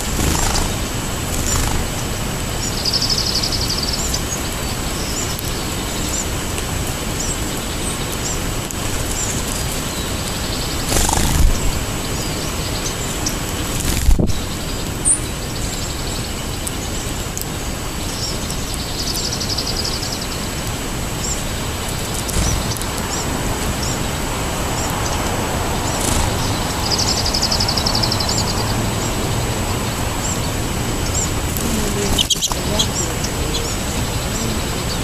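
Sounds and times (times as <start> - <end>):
songbirds chirping: 0.0 - 35.0
steady background rush: 18.1 - 35.0
bird trills: 30.2 - 35.0.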